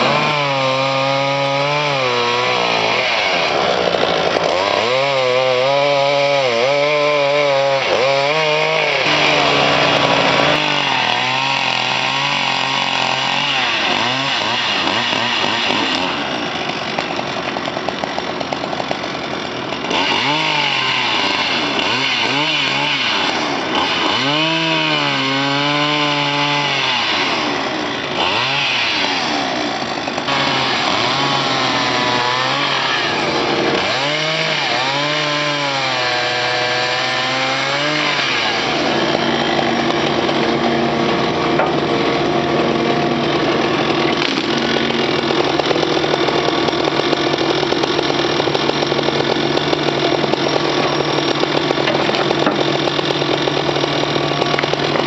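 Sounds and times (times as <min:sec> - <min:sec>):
chainsaw revving while cutting wood: 0:00.0 - 0:55.0
excavator engine running: 0:08.6 - 0:13.3, 0:38.7 - 0:55.0.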